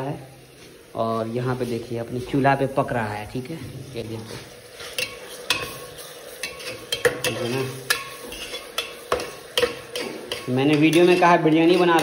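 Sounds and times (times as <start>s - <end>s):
onions sizzling: 0.0s - 12.0s
metal spoon scraping a pot: 4.7s - 12.0s.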